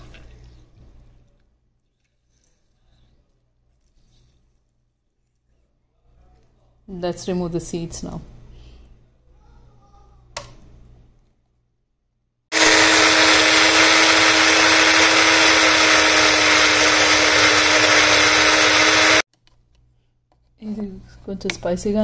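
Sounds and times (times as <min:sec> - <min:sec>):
electric blender running: 0:12.5 - 0:19.2.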